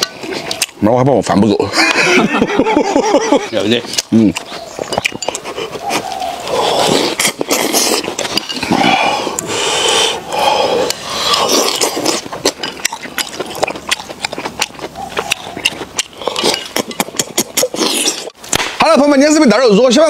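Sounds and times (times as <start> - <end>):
chewing clicks and smacks: 0.4 - 0.8, 3.9 - 8.6, 10.8 - 18.6
loud slurping: 5.3 - 18.4.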